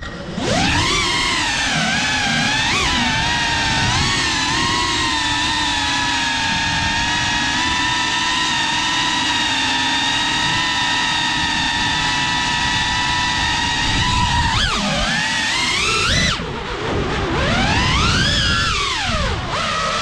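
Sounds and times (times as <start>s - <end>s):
drone motors whining: 0.0s - 20.0s
prop wash rumble: 0.0s - 20.0s.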